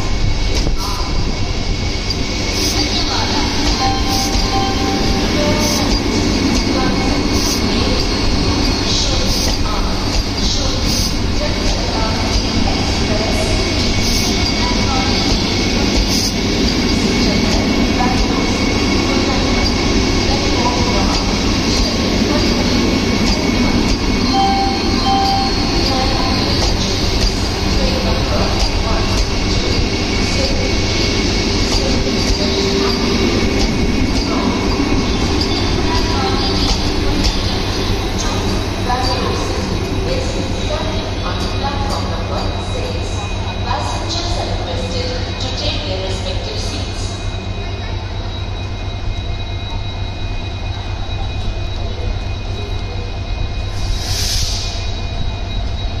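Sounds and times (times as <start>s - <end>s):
train wheels rumbling on rails: 0.0s - 56.0s
thin high tone: 24.3s - 26.5s.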